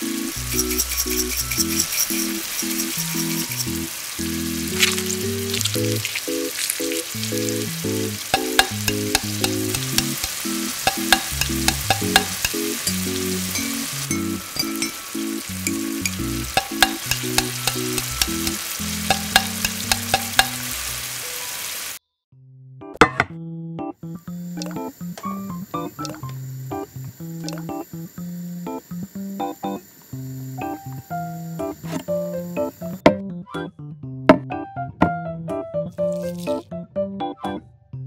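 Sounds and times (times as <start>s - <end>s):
food sizzling in a wok: 0.0s - 22.0s, 24.3s - 33.0s
utensil clicking against pan: 0.4s - 13.9s, 15.6s - 20.8s, 26.0s - 26.3s.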